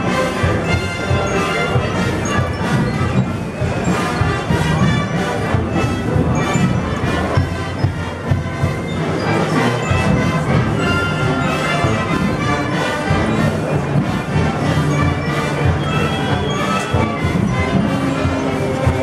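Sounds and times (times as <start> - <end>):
brass band playing slow march: 0.0 - 19.0.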